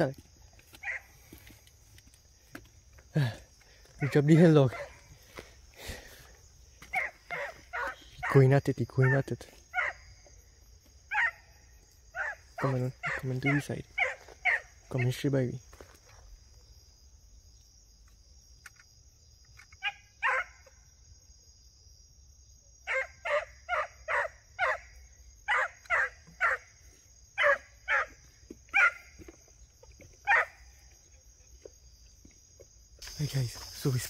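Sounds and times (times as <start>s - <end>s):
crickets chirring: 0.0s - 34.0s
hounds barking: 0.7s - 1.5s, 3.9s - 5.4s, 6.8s - 10.3s, 11.1s - 15.3s, 19.8s - 20.7s, 22.8s - 29.5s, 30.1s - 31.0s.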